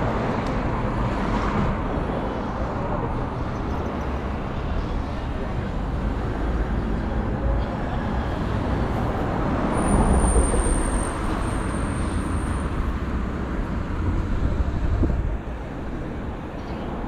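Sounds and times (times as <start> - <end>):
traffic rumble: 0.0 - 17.0.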